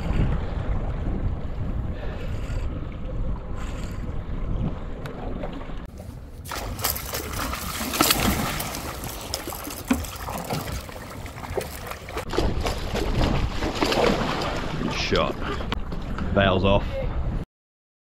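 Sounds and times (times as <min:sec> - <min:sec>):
fish thrashing and splashing water: 0:06.4 - 0:15.6.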